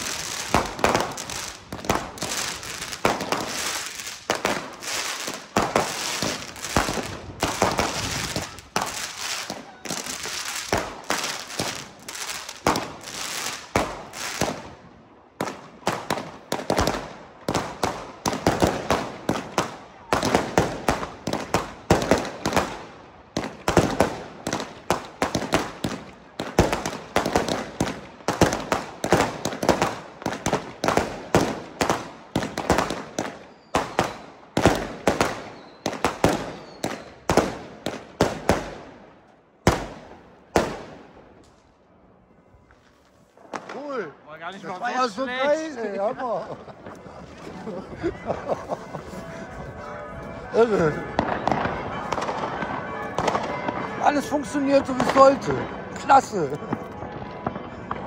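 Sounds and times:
firework shots bursting: 0:00.0 - 0:14.7, 0:15.4 - 0:39.0
firework bangs: 0:00.0 - 0:41.5, 0:50.6 - 0:58.0
firework crackling: 0:00.0 - 0:41.7.

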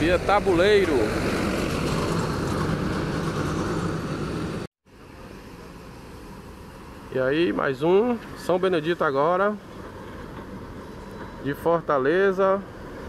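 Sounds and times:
diesel coach engine running: 0:00.0 - 0:04.7.

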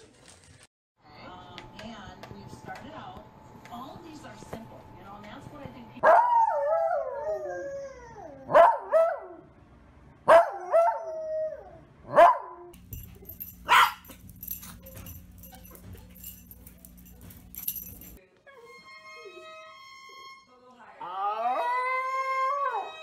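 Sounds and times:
dog barking: 0:06.0 - 0:06.7, 0:08.5 - 0:09.4, 0:10.3 - 0:11.0, 0:12.1 - 0:18.2
dog howling: 0:21.0 - 0:23.0.

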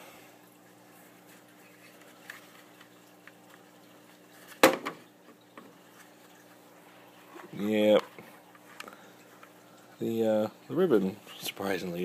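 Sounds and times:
sharp loud plastic clack: 0:04.6 - 0:05.0.

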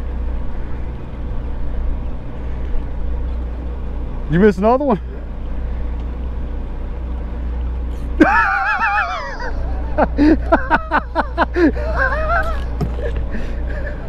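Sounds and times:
boat engine drone: 0:00.0 - 0:14.0
man laughing: 0:08.1 - 0:14.0.

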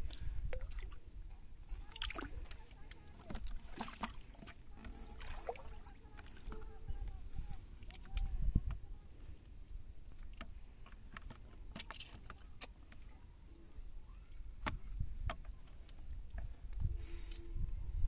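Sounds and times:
water splashing in a bucket: 0:00.0 - 0:01.0, 0:01.7 - 0:07.0.

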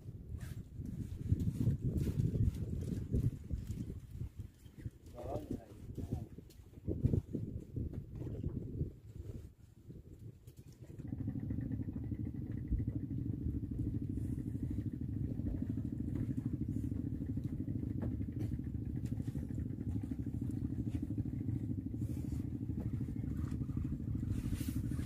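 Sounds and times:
boat engine droning: 0:11.0 - 0:25.0.

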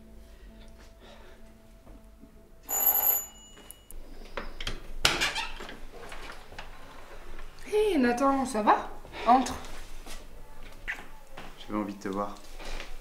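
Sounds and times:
doorbell ringing: 0:02.6 - 0:04.0.

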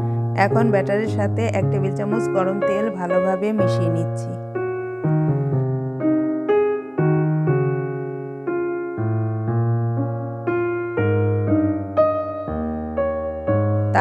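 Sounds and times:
gentle keyboard melody: 0:00.0 - 0:14.0.

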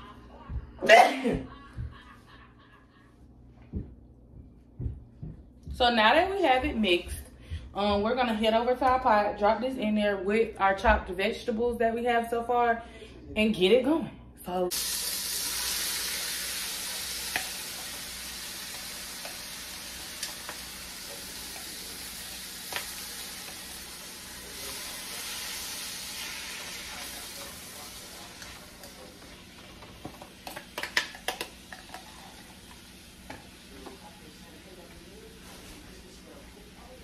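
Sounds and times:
shrimp sizzling in a wok: 0:14.7 - 0:34.4.

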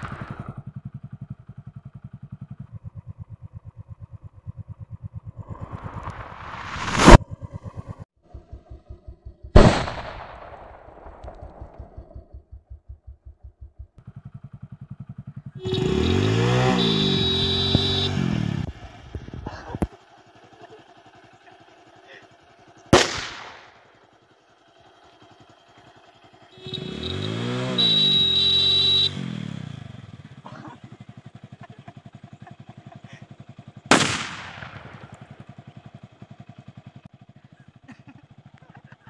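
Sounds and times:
motorcycle engine revving: 0:00.0 - 0:09.6, 0:12.0 - 0:39.0
motorcycle horn: 0:14.2 - 0:19.3, 0:24.8 - 0:32.2
firecracker bangs: 0:22.9 - 0:23.8, 0:33.9 - 0:35.1.

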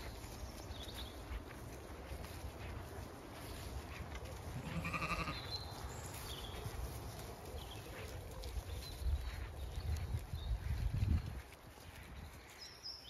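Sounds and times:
sheep bleating: 0:04.5 - 0:05.5.

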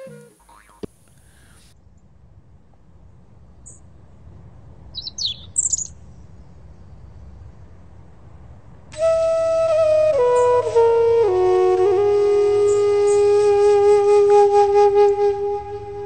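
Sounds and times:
slow flute music: 0:00.0 - 0:00.5, 0:08.9 - 0:16.0
bird chirps: 0:04.9 - 0:06.0.

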